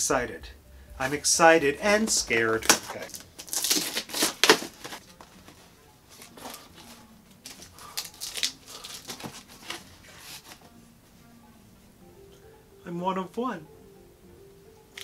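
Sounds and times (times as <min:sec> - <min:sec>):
cardboard box rustling open: 0:02.0 - 0:10.6.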